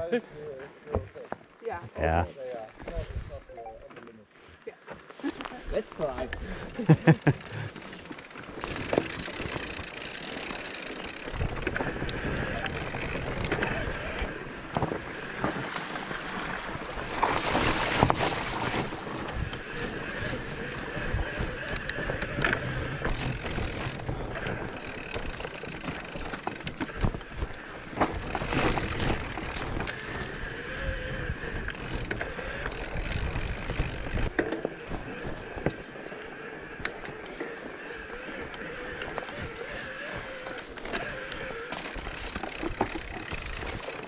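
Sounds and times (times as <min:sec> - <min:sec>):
bike rattling over rough trail: 0:05.1 - 0:44.0
wind buffeting microphone: 0:16.5 - 0:37.1.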